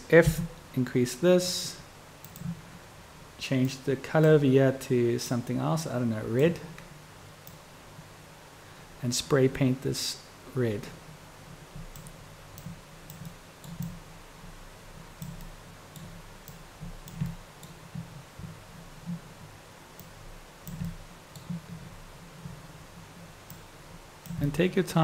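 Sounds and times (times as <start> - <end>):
computer mouse clicks: 2.2 - 2.6, 7.4 - 7.6, 11.9 - 14.0, 15.2 - 19.2, 20.0 - 21.7, 23.5 - 24.5.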